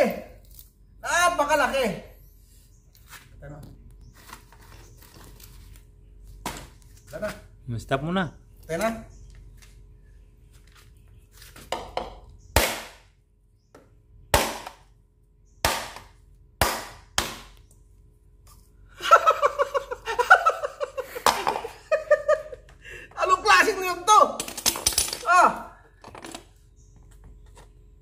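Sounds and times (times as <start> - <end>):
knife chopping coconut husk: 12.6 - 13.0, 14.3 - 14.8, 15.6 - 17.6.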